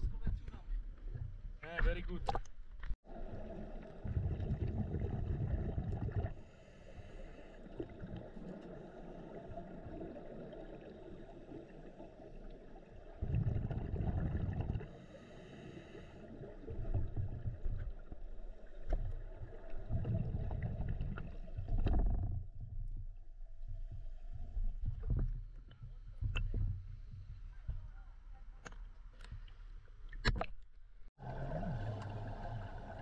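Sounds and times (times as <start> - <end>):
underwater exhaled bubbles: 3.0 - 22.6, 31.2 - 33.0
regulator inhale hiss: 6.3 - 7.8, 14.9 - 16.3.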